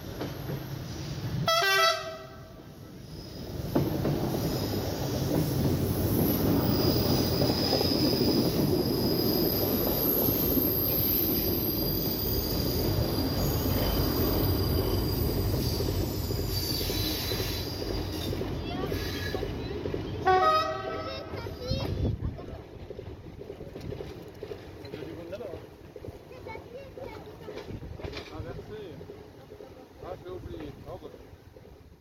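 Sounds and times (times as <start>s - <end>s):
train horn: 1.4s - 2.6s, 20.2s - 21.1s
faint high wheel squeal: 6.6s - 19.6s.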